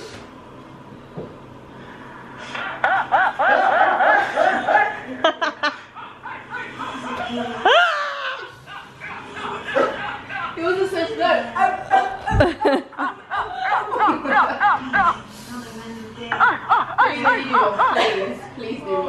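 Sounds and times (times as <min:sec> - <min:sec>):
person laughing: 0:11.4 - 0:15.2.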